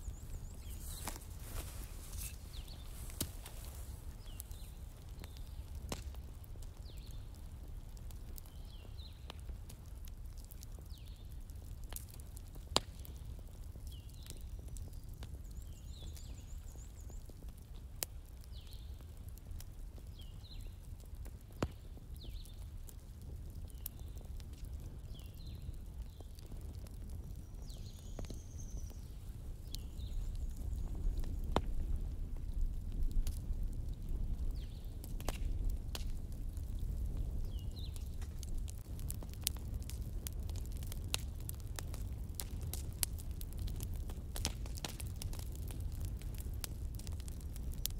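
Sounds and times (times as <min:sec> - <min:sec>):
fire crackling and popping: 0:00.0 - 0:47.9.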